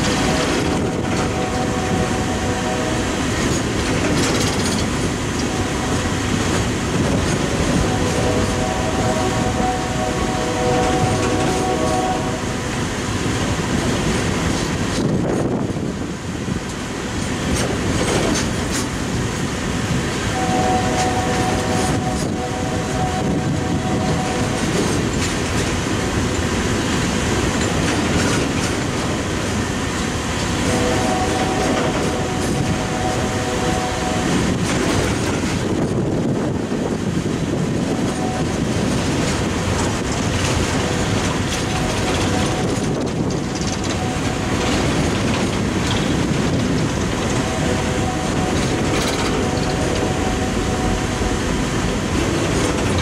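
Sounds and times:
train wheels rumbling and clattering: 0.0 - 53.0
crossing bell ringing tone: 7.4 - 12.8, 20.3 - 25.5, 30.6 - 35.0, 37.9 - 53.0.

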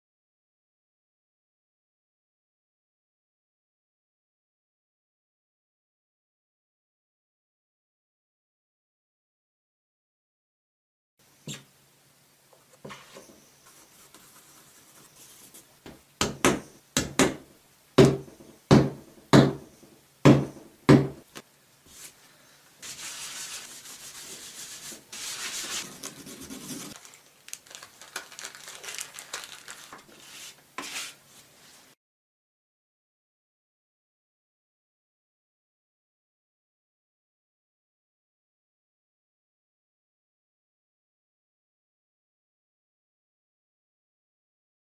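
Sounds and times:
paint tube tip rubbing surface: 22.8 - 27.0, 30.1 - 31.2.

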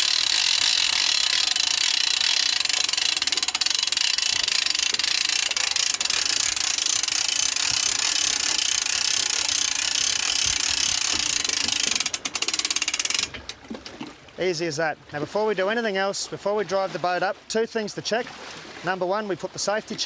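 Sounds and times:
winch ratchet clicking: 0.0 - 13.6.

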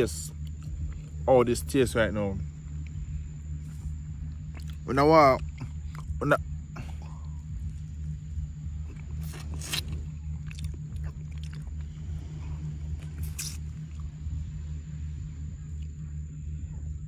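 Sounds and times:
man chewing food: 0.0 - 16.3
steady low hum: 0.0 - 17.0.

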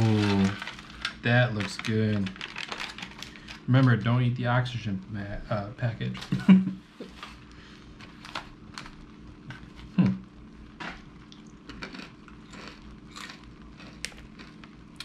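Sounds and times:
packaging crinkling: 0.0 - 4.0, 7.1 - 10.0.

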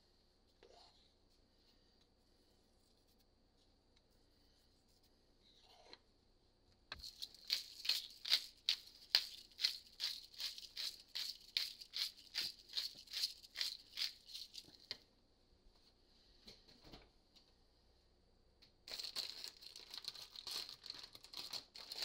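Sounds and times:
seasoning shaker rattling: 7.0 - 14.9, 18.9 - 22.0.

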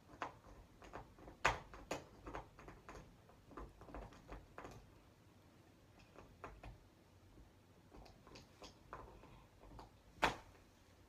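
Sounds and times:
lip pencil clicking and tapping: 0.0 - 4.9.

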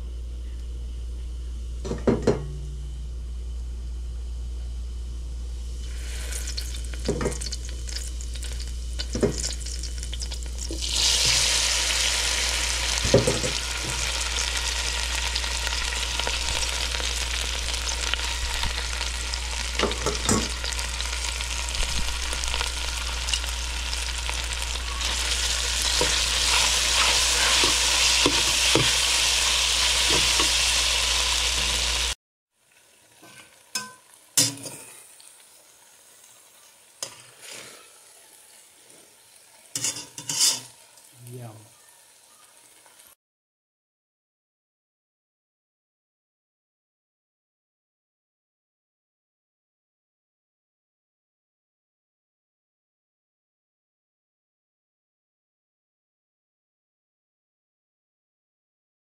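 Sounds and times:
steady low hum: 0.0 - 32.2
noodles sizzling in a frying pan: 5.8 - 43.2.

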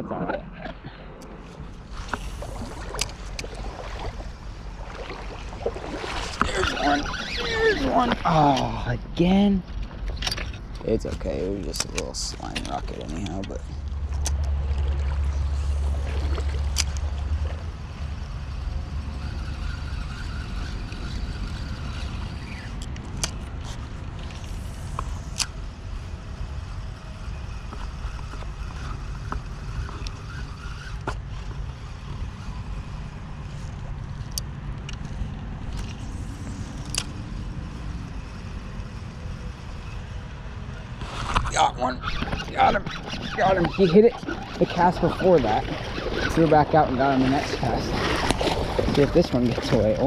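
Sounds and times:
fishing reel whirring: 1.6 - 8.7, 11.7 - 50.0
sharp reel clicks: 16.6 - 25.8, 26.4 - 33.6, 34.2 - 46.6.

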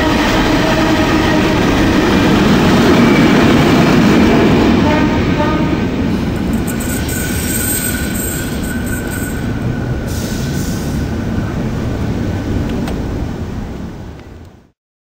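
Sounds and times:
train rumbling and rattling: 0.0 - 14.7
wheel squeal: 6.7 - 9.9.

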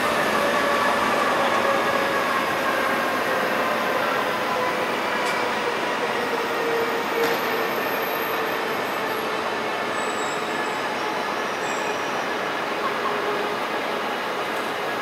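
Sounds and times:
high wheel squeal: 9.9 - 13.2.

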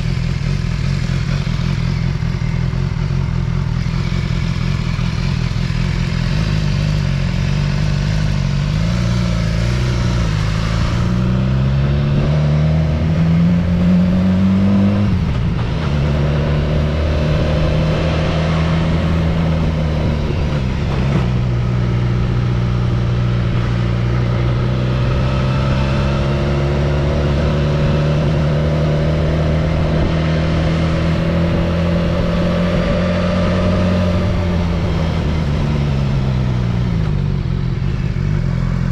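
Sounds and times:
vehicle engine accelerating: 0.0 - 38.9.

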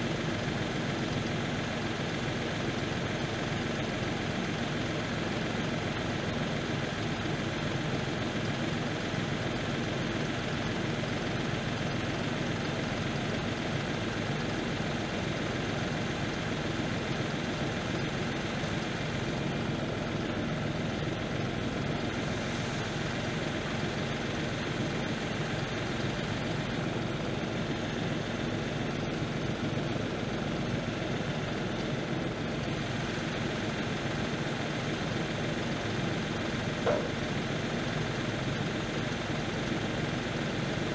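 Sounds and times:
tractor diesel engine idling: 0.0 - 40.9.

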